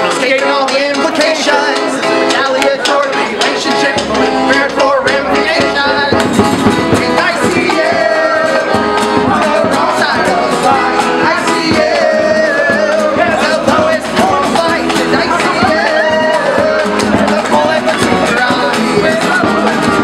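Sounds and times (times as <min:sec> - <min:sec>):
man singing: 0:00.0 - 0:20.0
strummed acoustic guitar: 0:00.0 - 0:20.0.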